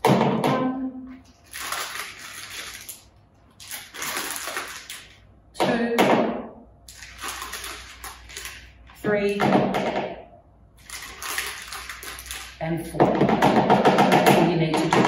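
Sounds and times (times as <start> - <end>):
packet rustling and crinkling: 1.2 - 5.2, 6.9 - 9.0, 10.8 - 12.6.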